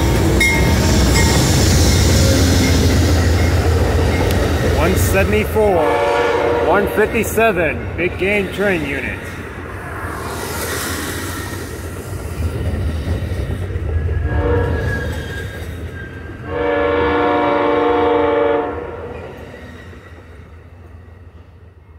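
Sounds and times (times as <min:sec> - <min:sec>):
train rumbling on rails: 0:00.0 - 0:21.9
locomotive air horn chord: 0:05.8 - 0:07.0, 0:14.3 - 0:14.8, 0:16.5 - 0:19.0.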